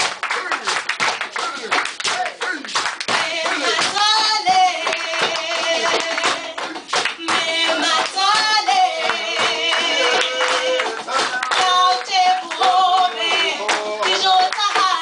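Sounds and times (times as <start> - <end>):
people clapping along: 0.0 - 15.0
woman singing into microphone: 3.1 - 15.0.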